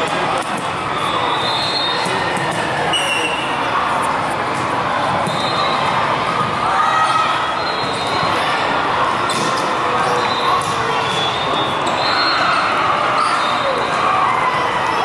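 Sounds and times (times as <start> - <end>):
sneaker squeaks: 1.0 - 3.6, 5.2 - 6.0, 7.3 - 8.5, 9.2 - 13.9
players shouting: 4.8 - 15.0
volleyballs struck and bouncing: 9.2 - 11.3.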